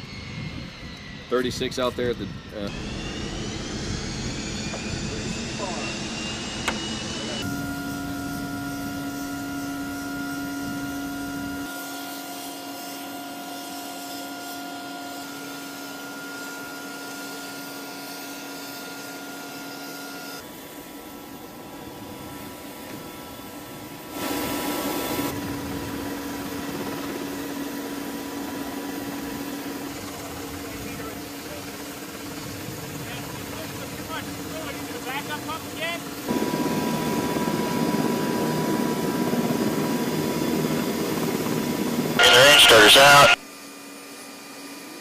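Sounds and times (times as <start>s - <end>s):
helicopter turbine whine: 0.0s - 45.0s.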